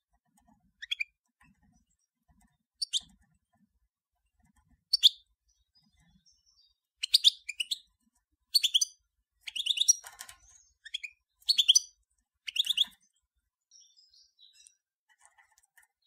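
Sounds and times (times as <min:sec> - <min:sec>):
goldfinch twittering song: 0:00.8 - 0:01.1, 0:02.8 - 0:03.1, 0:04.9 - 0:07.9, 0:08.5 - 0:14.8.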